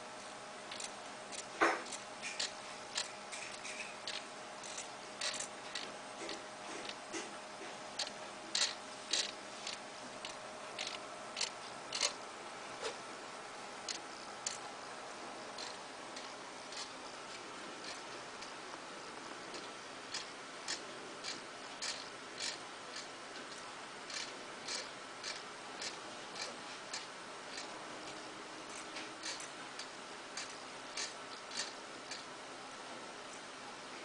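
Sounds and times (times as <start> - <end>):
faint steady whine: 0.0 - 34.0
servo motors clicking and buzzing: 0.7 - 7.3, 8.0 - 12.2, 15.6 - 16.9, 28.7 - 32.3.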